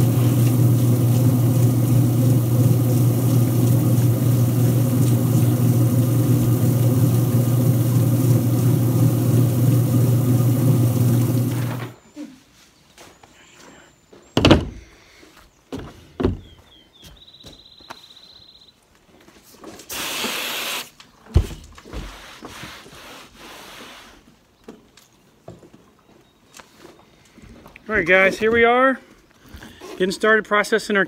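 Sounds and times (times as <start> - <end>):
hose nozzle spraying water: 0.0 - 12.0, 19.9 - 20.9.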